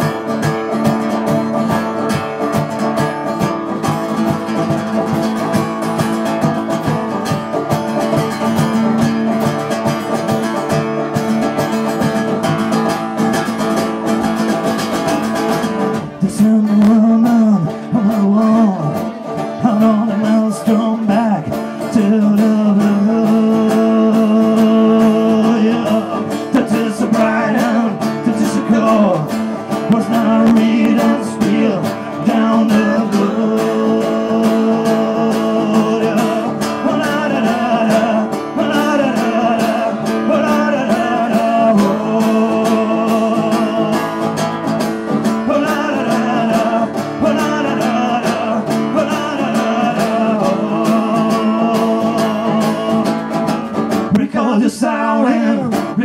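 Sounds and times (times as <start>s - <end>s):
banjo: 0.0s - 56.0s
bluegrass band playing: 0.0s - 56.0s
man singing: 14.9s - 56.0s.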